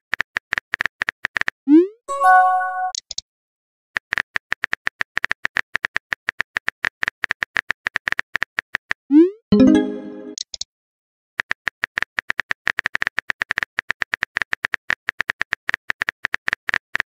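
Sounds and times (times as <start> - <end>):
message arrival chime: 2.1 - 3.0, 9.5 - 10.4.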